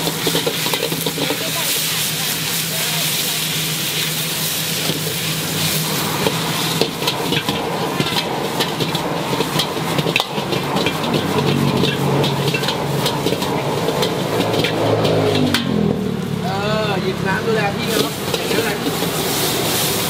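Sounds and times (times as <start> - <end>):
metal ladle scraping and clinking: 0.0 - 1.8, 4.6 - 15.8, 17.8 - 20.0
noodles sizzling in wok: 0.0 - 20.0.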